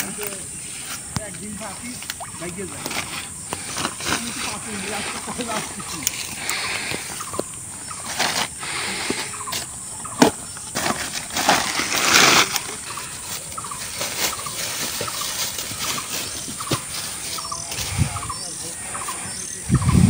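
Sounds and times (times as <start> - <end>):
faint calls: 0.0 - 10.7, 12.1 - 20.0
plastic sack rustling: 10.7 - 17.4.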